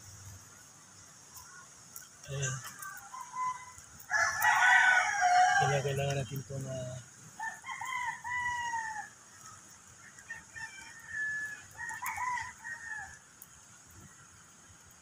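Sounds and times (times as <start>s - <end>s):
rooster crowing: 2.7s - 6.1s, 7.4s - 9.2s, 10.1s - 13.2s.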